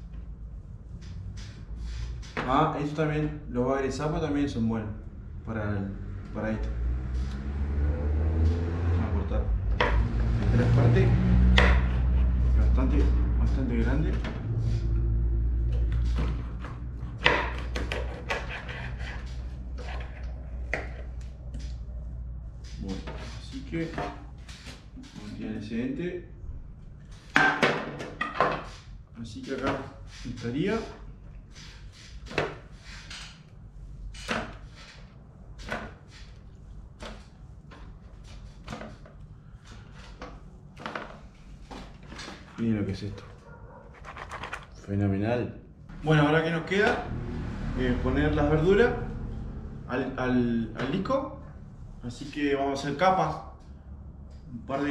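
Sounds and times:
knife chopping on cutting board: 0:11.4 - 0:12.1, 0:16.0 - 0:20.0.

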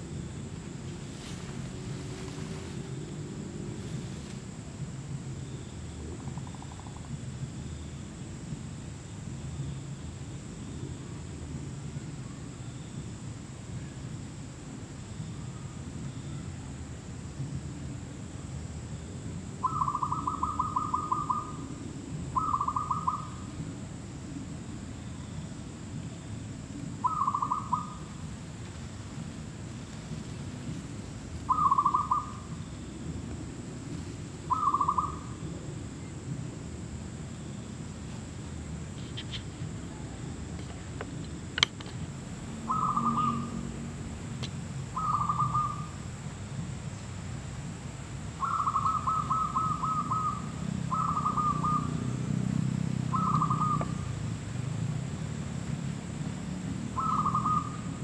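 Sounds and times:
dove cooing: 0:19.6 - 0:21.7, 0:22.4 - 0:23.4, 0:27.0 - 0:28.2, 0:31.5 - 0:32.5, 0:34.4 - 0:35.8, 0:42.6 - 0:43.6, 0:45.0 - 0:45.9, 0:48.4 - 0:52.0, 0:53.1 - 0:54.0, 0:57.0 - 0:58.0.

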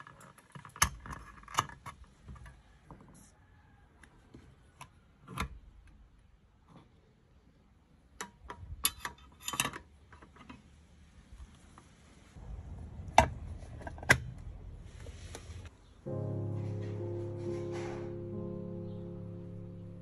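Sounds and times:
music: 0:16.0 - 0:20.0.

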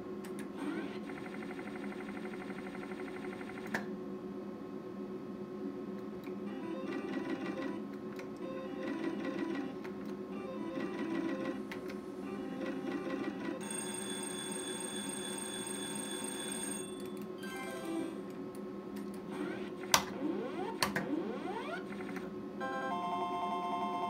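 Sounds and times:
electronic beeps and rising sweeps: 0:19.3 - 0:22.2.

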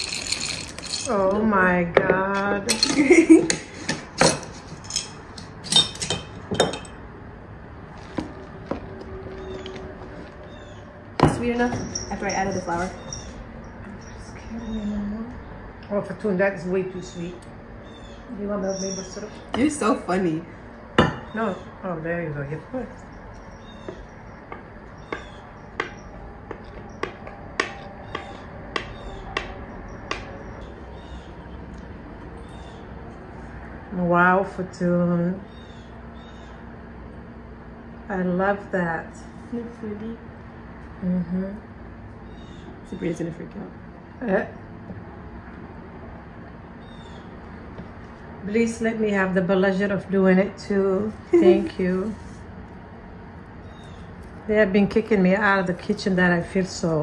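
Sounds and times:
kitchenware clinking: 0:00.0 - 0:01.4, 0:02.0 - 0:07.0, 0:11.2 - 0:14.0, 0:21.0 - 0:21.4.

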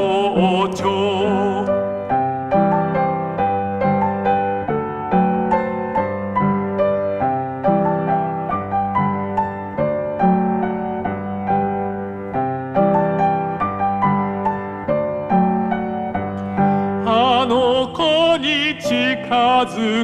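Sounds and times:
singing voice with vibrato: 0:00.0 - 0:01.8
piano playing: 0:00.0 - 0:20.0.

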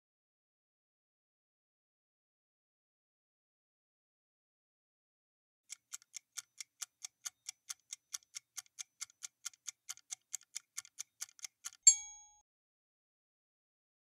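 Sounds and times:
fast clock-like ticking: 0:05.7 - 0:12.0
bright bell-like ding: 0:11.9 - 0:12.4.

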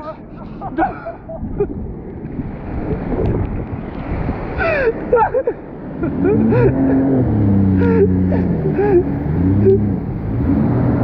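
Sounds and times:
wind on microphone: 0:00.0 - 0:09.0
water rushing: 0:00.0 - 0:11.0
jet ski engine: 0:05.6 - 0:11.0.

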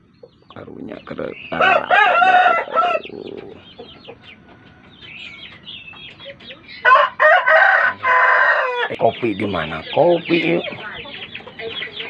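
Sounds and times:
chickens clucking: 0:00.0 - 0:12.0
rooster crowing: 0:01.5 - 0:03.8, 0:06.8 - 0:09.0.

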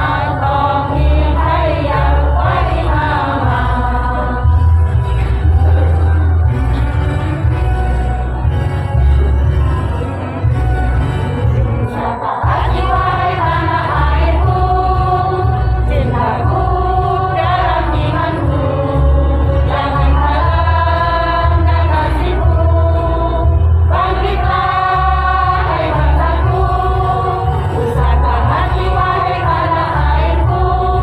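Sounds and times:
women's choir singing: 0:00.0 - 0:05.4, 0:11.6 - 0:31.0
heavy low accompaniment: 0:00.0 - 0:31.0.

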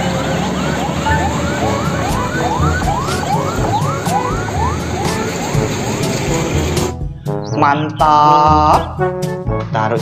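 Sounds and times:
electronic siren whooping: 0:00.0 - 0:06.9.

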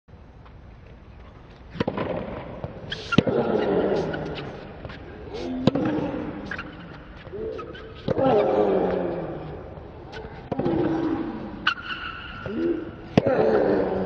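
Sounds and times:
racket hitting ball: 0:01.7 - 0:05.0, 0:05.6 - 0:09.0.

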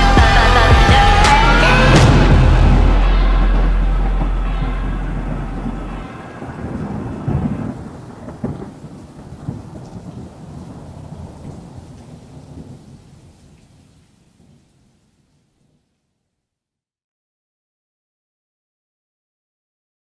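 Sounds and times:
music: 0:00.0 - 0:06.8
thunder rumbling and cracking: 0:00.0 - 0:13.6
rain: 0:02.0 - 0:16.1.

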